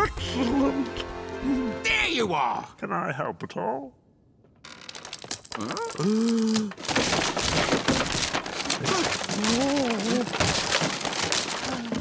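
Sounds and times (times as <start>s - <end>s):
vocal ooh: 5.6s - 6.8s
wooden boards clattering down: 6.7s - 12.0s.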